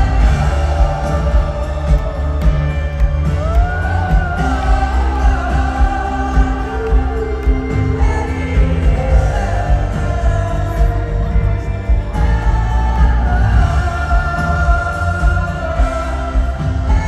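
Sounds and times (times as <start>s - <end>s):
live band playing: 0.0s - 17.0s
woman singing: 3.4s - 17.0s.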